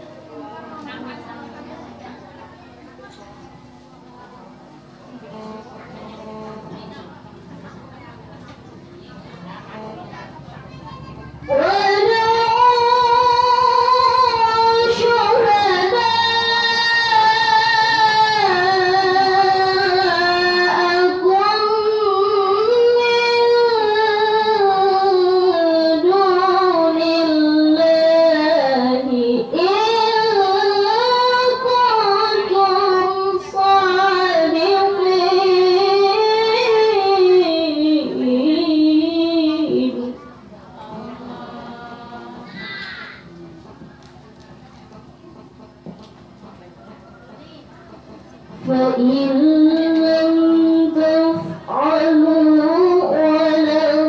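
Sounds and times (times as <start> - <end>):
girl reciting melodically: 9.7 - 43.4, 48.4 - 54.0.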